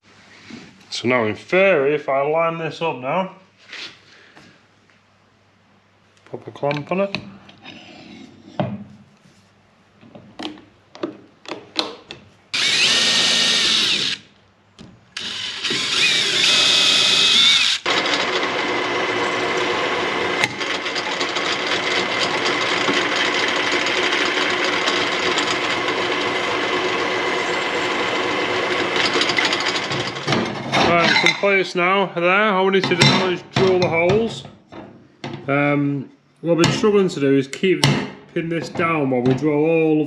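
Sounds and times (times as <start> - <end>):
drill whining: 12.5 - 14.3, 15.2 - 30.3
pillar drill drilling metal: 12.6 - 14.3, 15.2 - 30.3.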